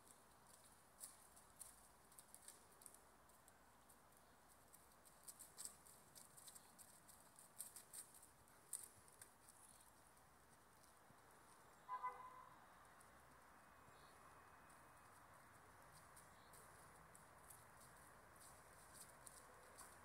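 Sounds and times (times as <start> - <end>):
faint high-pitched ticks: 0.0 - 12.2
faint outdoor hiss: 0.0 - 20.0.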